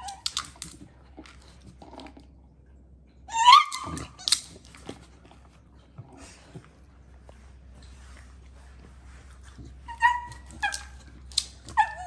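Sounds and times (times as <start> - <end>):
dog yipping: 3.3 - 4.4, 9.9 - 12.0.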